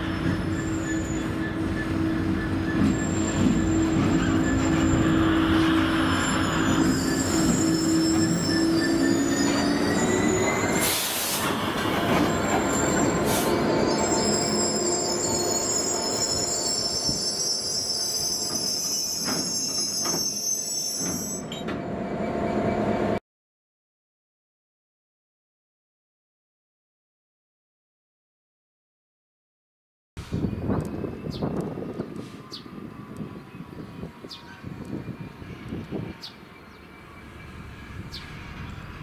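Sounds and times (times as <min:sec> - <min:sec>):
high-pitched wheel squealing: 0:00.0 - 0:10.8, 0:12.2 - 0:21.5
diesel locomotive engine passing: 0:00.0 - 0:18.9, 0:30.2 - 0:39.0.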